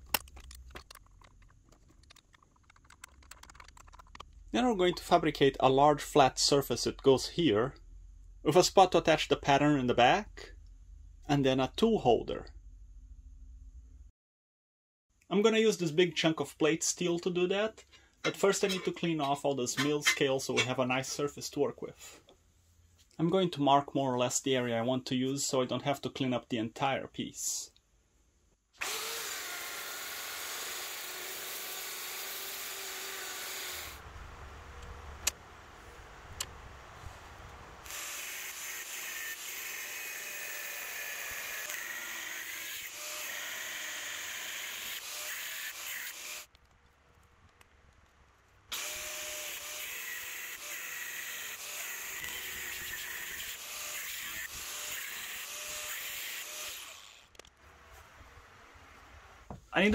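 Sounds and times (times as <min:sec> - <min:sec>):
power grinder grinding steel: 0:18.3 - 0:20.7, 0:28.8 - 0:34.0, 0:37.8 - 0:46.5, 0:48.7 - 0:57.4.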